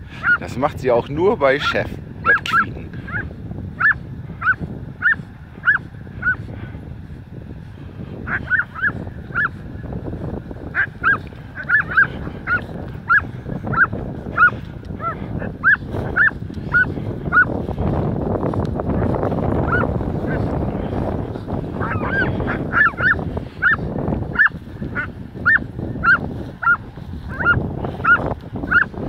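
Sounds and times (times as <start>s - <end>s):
dog squealing in play: 2.3s - 3.2s, 3.8s - 6.4s, 8.3s - 9.5s, 10.8s - 17.5s, 21.8s - 23.8s, 24.4s - 28.9s.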